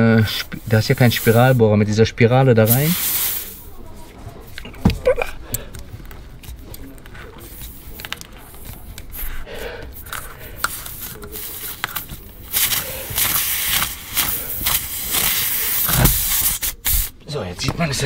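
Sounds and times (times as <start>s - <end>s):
air hissing from tyre: 0.4s - 1.7s, 2.6s - 3.8s, 9.1s - 17.2s.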